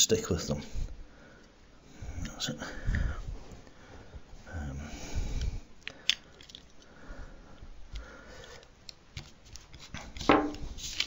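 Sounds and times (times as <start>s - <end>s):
small parts clicking: 5.8s - 6.9s.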